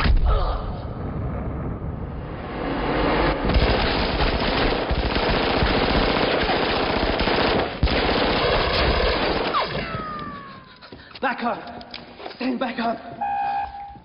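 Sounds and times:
rapid automatic gunfire: 0:03.5 - 0:09.8.

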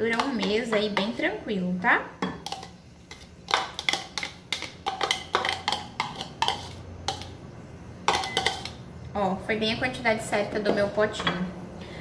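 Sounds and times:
metal spoon scraping glass bowl: 0:04.9 - 0:07.3, 0:08.1 - 0:08.8.

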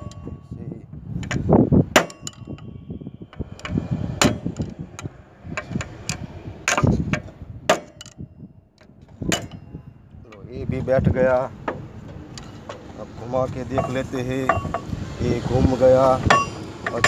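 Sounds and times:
metal rod knocking on metal: 0:13.7 - 0:14.9.

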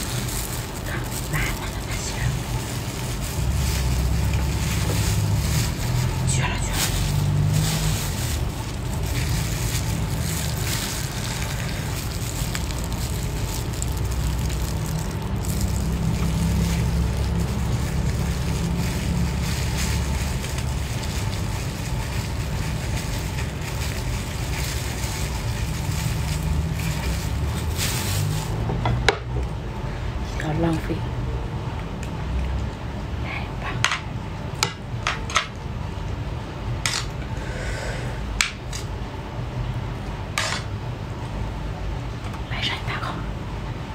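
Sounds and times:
plastic gloves crinkling and squelching: 0:00.0 - 0:28.8
low rumble: 0:00.0 - 0:30.3.

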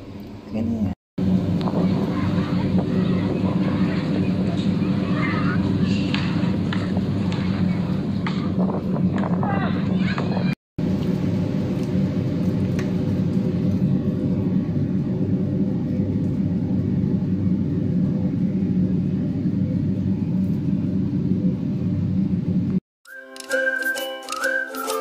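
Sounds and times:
machine hum and whir: 0:00.0 - 0:22.8
light music: 0:23.1 - 0:25.0.

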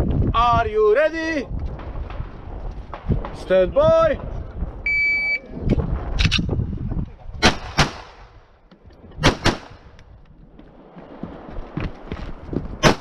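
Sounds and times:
pistol shots: 0:07.4 - 0:08.2, 0:09.2 - 0:09.8.

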